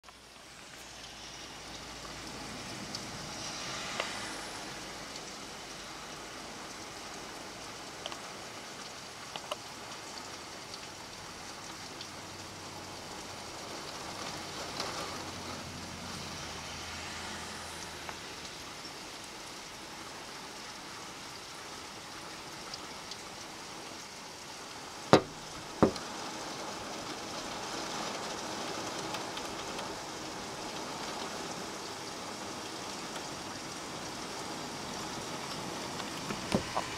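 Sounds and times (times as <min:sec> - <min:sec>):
heavy rain falling: 0:00.0 - 0:36.9
water pouring from roof gutter: 0:00.1 - 0:36.9
sharp knocks: 0:25.2 - 0:26.0.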